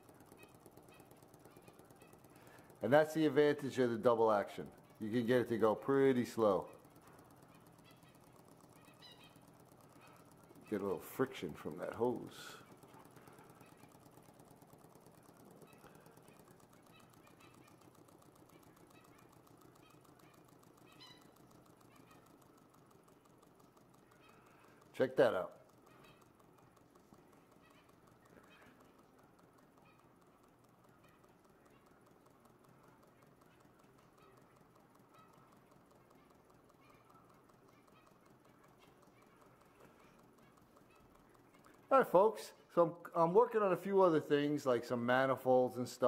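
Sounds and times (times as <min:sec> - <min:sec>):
small engine ticking: 0:00.0 - 0:46.0.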